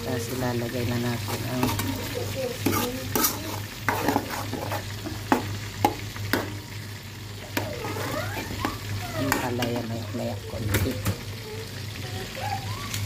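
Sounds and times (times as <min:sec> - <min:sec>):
spatula scraping wok: 0:00.0 - 0:10.4
frying sizzle: 0:00.0 - 0:13.0
spatula clanking against pan: 0:01.3 - 0:06.6.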